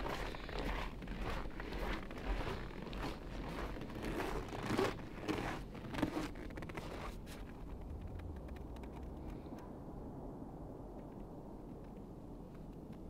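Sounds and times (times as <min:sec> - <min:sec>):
clothing rustling: 0:00.0 - 0:07.7
footsteps crunching on snow: 0:00.0 - 0:07.7.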